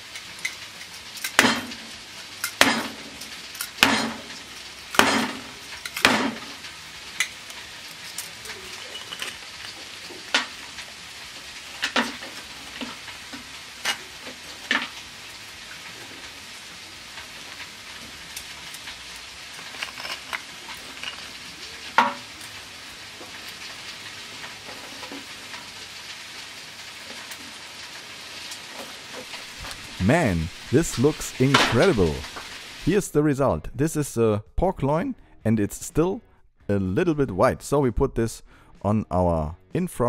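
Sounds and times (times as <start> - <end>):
steady hiss: 0.0 - 34.3
salt crust cracking and crunching: 17.1 - 32.6.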